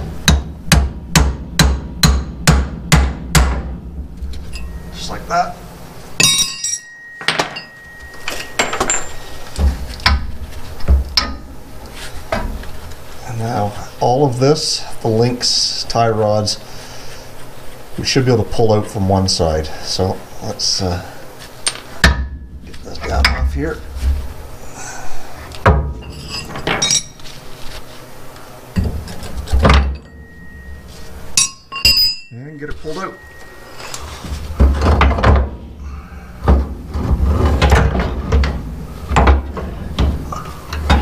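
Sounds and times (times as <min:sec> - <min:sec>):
sharp metal knocks: 0:00.2 - 0:03.8, 0:06.2 - 0:10.3
metal tools clinking: 0:04.4 - 0:05.2, 0:06.2 - 0:09.6, 0:26.0 - 0:27.2, 0:29.9 - 0:34.1.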